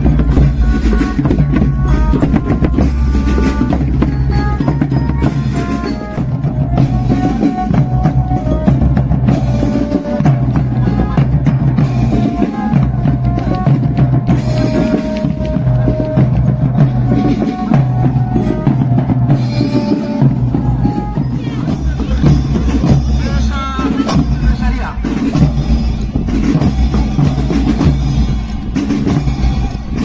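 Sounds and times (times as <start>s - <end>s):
melody of held notes: 0.0s - 24.0s
bass and snare drums: 0.0s - 30.0s
marching drum band: 0.0s - 30.0s.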